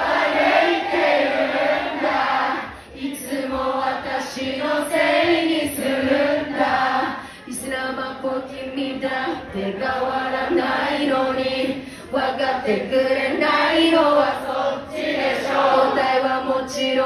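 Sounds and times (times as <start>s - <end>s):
crowd singing along: 0.0s - 17.0s
woman singing live: 2.7s - 14.9s, 15.6s - 17.0s.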